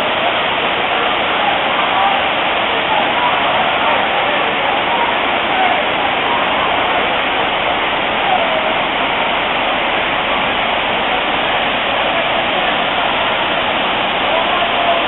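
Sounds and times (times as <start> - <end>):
waterfall rushing over rocks: 0.0 - 15.0.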